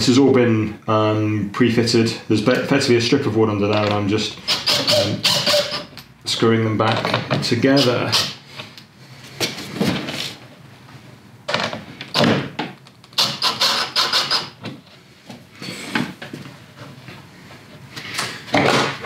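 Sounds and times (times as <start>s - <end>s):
cordless drill driving screws: 4.5s - 5.9s, 7.8s - 8.4s, 13.2s - 14.6s.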